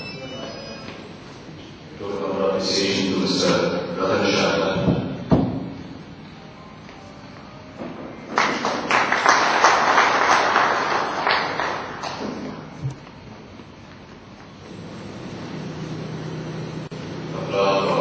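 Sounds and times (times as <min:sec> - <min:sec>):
audience applauding: 0:08.3 - 0:12.5.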